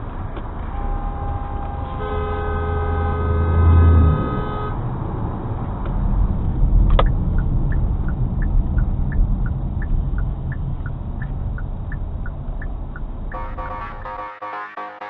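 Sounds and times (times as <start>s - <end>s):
car engine and road noise: 0.0s - 15.0s
car horn: 0.7s - 4.8s, 13.3s - 15.0s
two-pitch indicator ticking: 7.0s - 15.0s.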